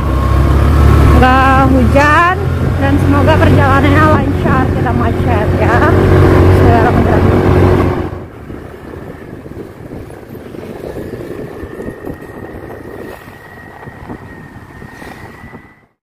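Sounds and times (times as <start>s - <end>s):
motorcycle engine: 0.0s - 16.0s
wind buffeting microphone: 0.0s - 16.0s
faint high whine: 9.0s - 16.0s.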